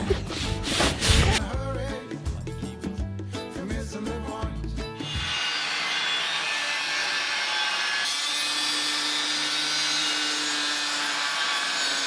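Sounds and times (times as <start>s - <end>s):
angle grinder grinding steel: 5.0s - 12.0s.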